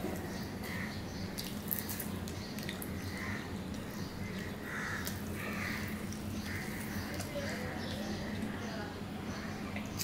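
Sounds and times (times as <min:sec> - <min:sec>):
steady low hum: 0:00.0 - 0:10.0
crows cawing: 0:03.0 - 0:03.5, 0:04.2 - 0:07.1.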